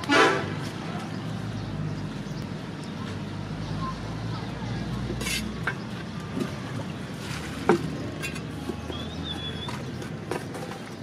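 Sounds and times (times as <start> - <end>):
trowel scraping cement mix: 5.1 - 5.8.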